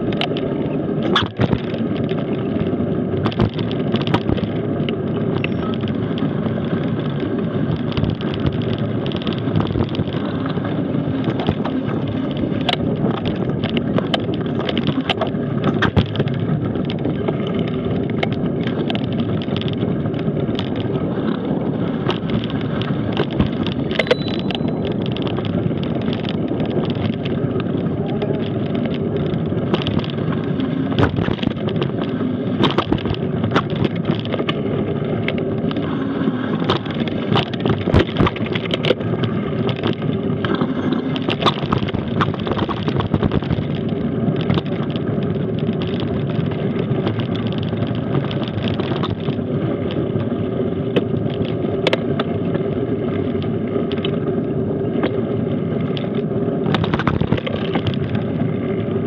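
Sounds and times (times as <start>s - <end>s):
bike rattling over stones: 0.0s - 59.0s
bike tyres rumbling on dirt: 0.0s - 59.0s
wind on microphone: 0.0s - 59.0s.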